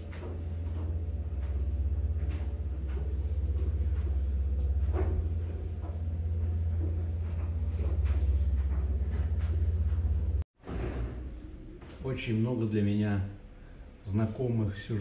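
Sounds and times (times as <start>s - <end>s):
low rumble: 0.0s - 10.5s.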